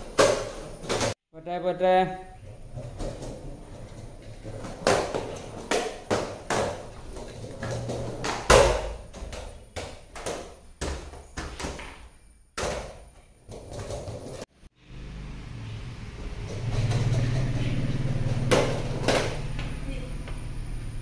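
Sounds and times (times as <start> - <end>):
skateboard clacking on tiled floor: 2.7 - 14.4, 16.4 - 19.6.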